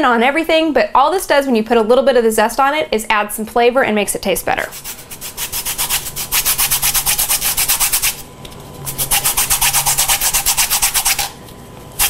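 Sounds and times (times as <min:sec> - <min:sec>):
lemon rasping on metal grater: 0:08.9 - 0:11.4.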